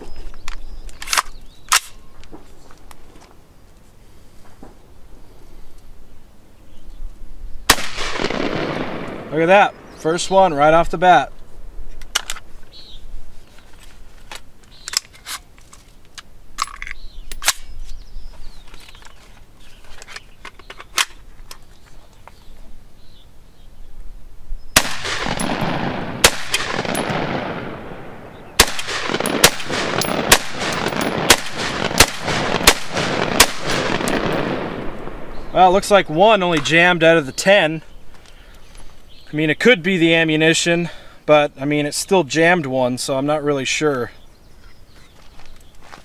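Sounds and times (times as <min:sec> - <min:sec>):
loud gunshots with echo: 0:07.7 - 0:10.6, 0:24.8 - 0:35.4.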